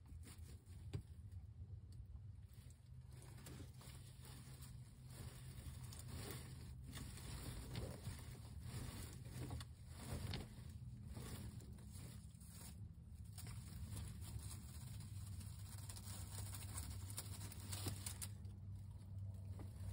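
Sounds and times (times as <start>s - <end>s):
rustling of straw and feathers: 0.0s - 19.9s.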